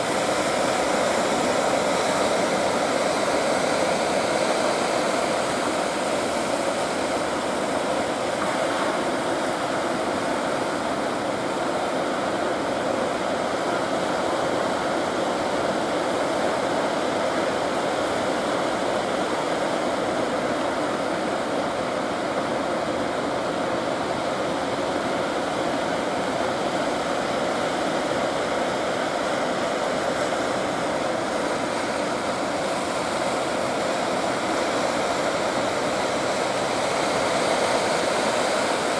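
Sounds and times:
surf rushing: 0:00.0 - 0:38.9.

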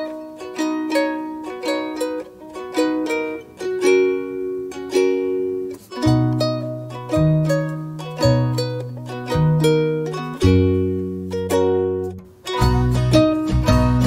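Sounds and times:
plucked strings music: 0:00.0 - 0:14.0
low bass notes: 0:08.2 - 0:14.0.

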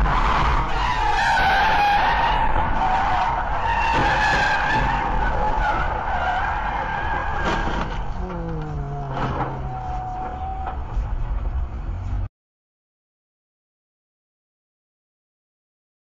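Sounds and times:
car tyres squealing: 0:00.0 - 0:11.5
road noise: 0:00.0 - 0:12.3.

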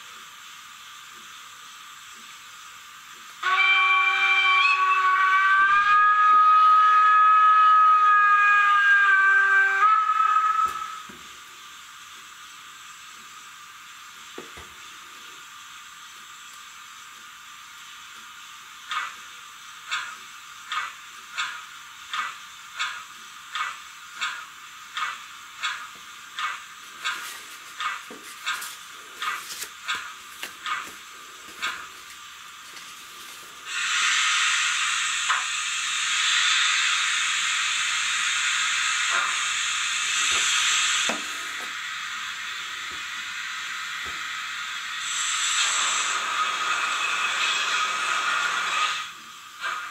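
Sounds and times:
steady background hiss: 0:00.0 - 0:03.4, 0:09.4 - 0:49.9
hissing steam beats: 0:00.0 - 0:49.9
model train steam whistle: 0:03.4 - 0:11.8, 0:33.6 - 0:49.9.

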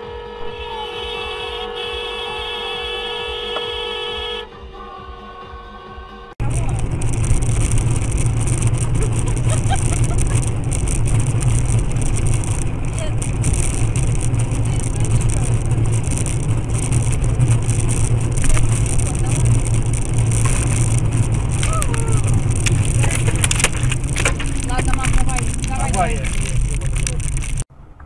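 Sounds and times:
car engine and road drone: 0:00.0 - 0:28.0.

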